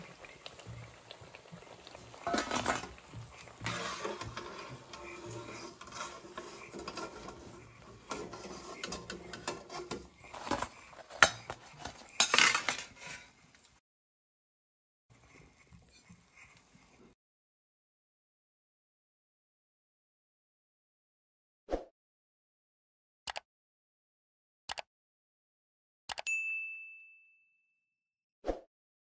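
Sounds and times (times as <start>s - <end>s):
oil sizzling: 0.0s - 13.3s
metal spoon scraping and clinking: 2.2s - 13.2s.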